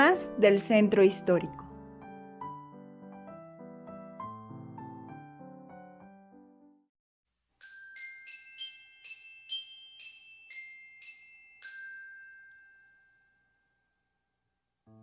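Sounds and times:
bell-like melody: 7.6 - 14.6.

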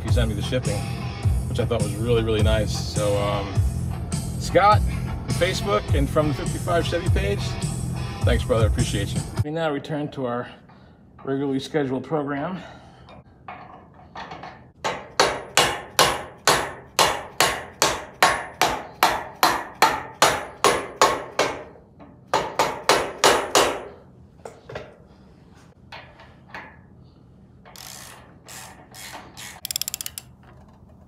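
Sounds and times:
hammer striking metal: 14.8 - 21.7
ratcheting: 27.7 - 31.0.

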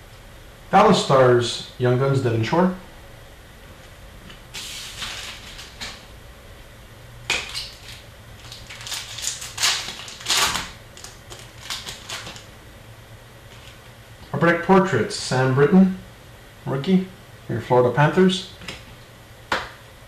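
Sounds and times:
foil wrapper crinkling and tearing: 4.6 - 6.0, 7.4 - 12.5.

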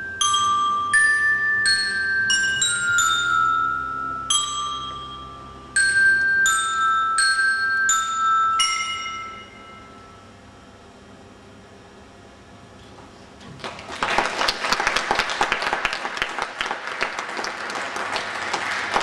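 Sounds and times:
bell lyre notes ringing: 0.0 - 10.4.

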